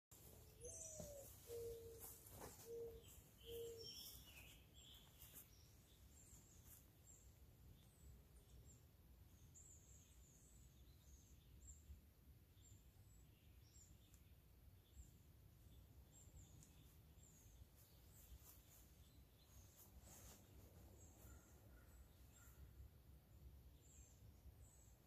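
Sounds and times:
small birds chirping: 0.1s - 25.0s
bird cooing: 0.3s - 4.5s.

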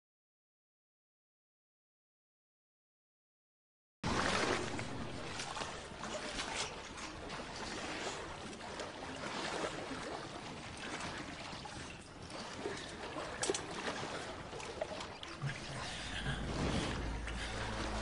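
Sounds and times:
shallow water splashing: 4.0s - 18.0s.

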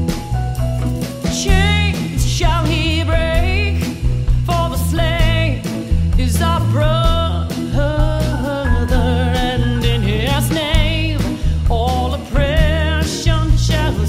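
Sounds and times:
band with steady bass line: 0.0s - 14.0s
singer with vibrato: 6.2s - 14.0s.

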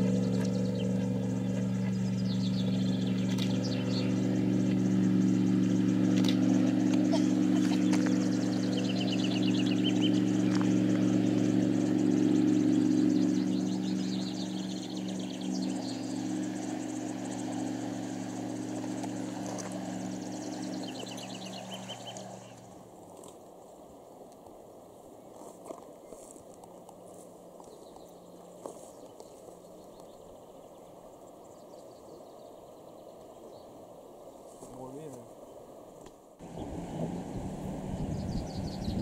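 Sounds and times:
small birds chirping: 0.0s - 22.8s, 23.9s - 35.7s, 36.4s - 39.0s
jet boat engine droning: 0.0s - 25.3s, 36.4s - 39.0s.

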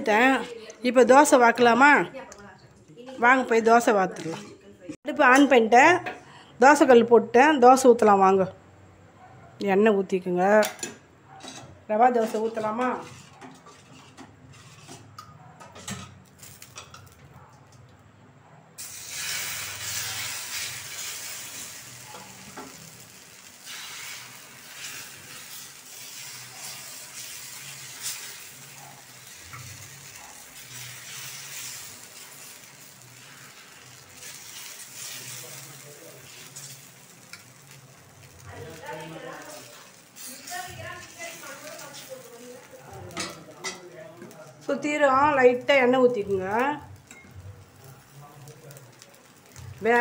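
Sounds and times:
batter sizzling on a hot pan: 12.1s - 17.3s, 18.8s - 50.0s.

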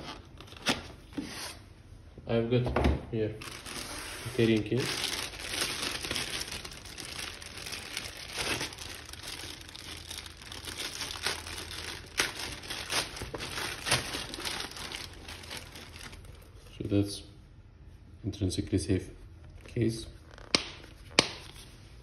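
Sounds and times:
plastic bag crinkling: 3.4s - 16.6s.

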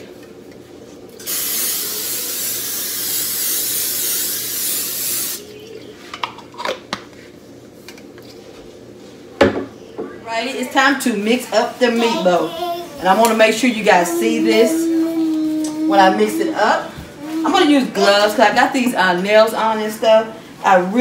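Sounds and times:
aerosol spray hissing: 1.2s - 5.4s.

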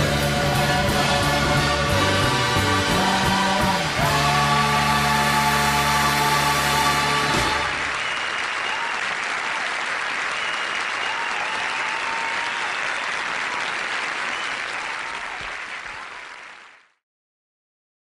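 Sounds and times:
audience applauding: 4.1s - 17.0s.

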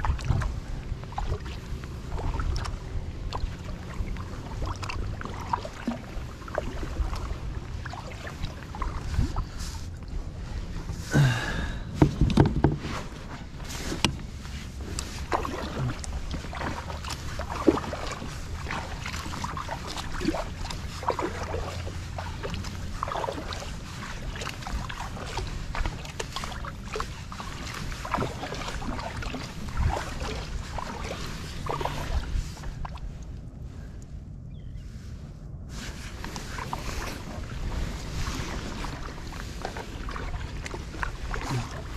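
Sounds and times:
water splashing around kayak: 0.0s - 41.9s
wind rumble on microphone: 0.0s - 41.9s
small knocks and drips: 12.0s - 12.9s.

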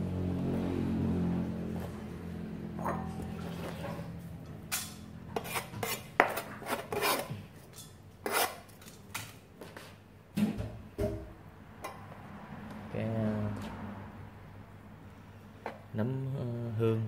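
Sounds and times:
cleaver scraping cutting board: 5.3s - 7.6s, 8.2s - 8.8s.

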